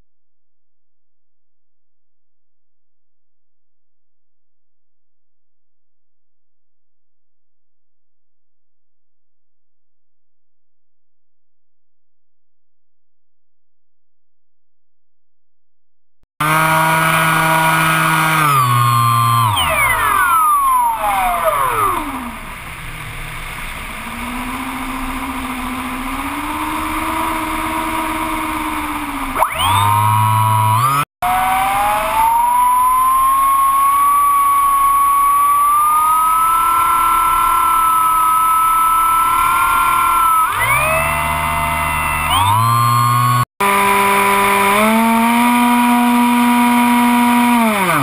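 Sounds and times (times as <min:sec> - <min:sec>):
electric motor and propeller whining: 0:16.4 - 0:48.0.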